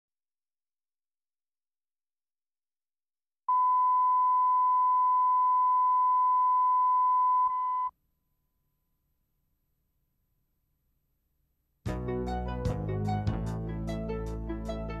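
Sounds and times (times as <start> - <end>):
steady reference tone beep: 3.5 - 7.9.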